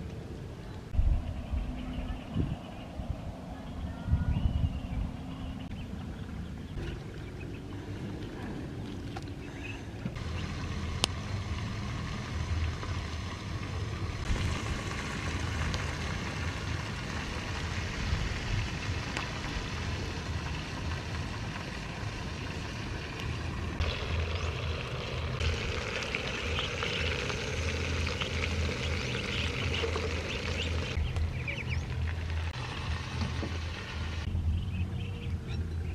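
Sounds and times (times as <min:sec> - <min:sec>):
low rumble: 0:00.0 - 0:35.9
wood fire crackling: 0:10.2 - 0:34.3.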